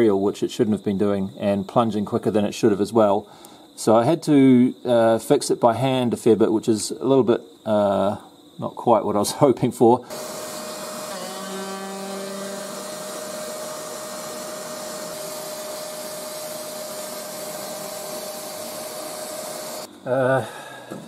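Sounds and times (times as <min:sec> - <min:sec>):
router spindle whine: 0:10.1 - 0:19.9
vacuum cleaner running: 0:10.1 - 0:19.9.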